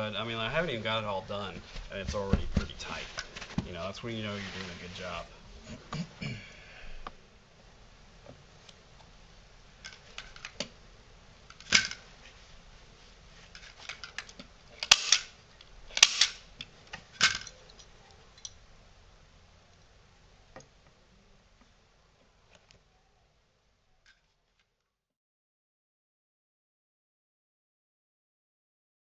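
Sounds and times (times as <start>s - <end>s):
staple gun snapping: 14.8s - 15.3s, 15.9s - 16.4s.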